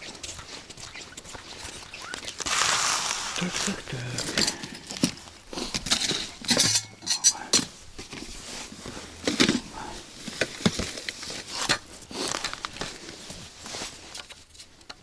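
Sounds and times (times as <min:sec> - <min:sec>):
fishing gear clattering: 0:03.4 - 0:07.8.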